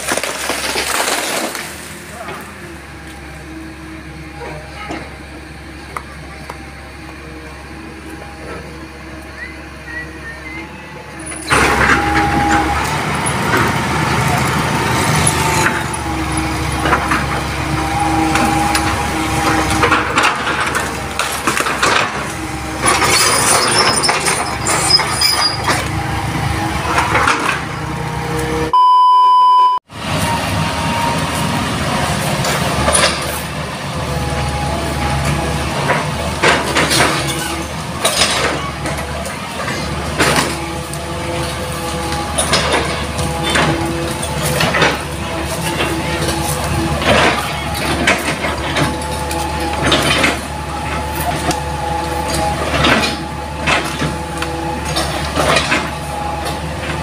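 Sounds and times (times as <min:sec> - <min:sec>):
knocks and cracks of branches: 0:00.0 - 0:02.6
excavator diesel engine running: 0:00.1 - 0:28.8, 0:29.9 - 0:57.0
steady high beep: 0:28.7 - 0:29.8.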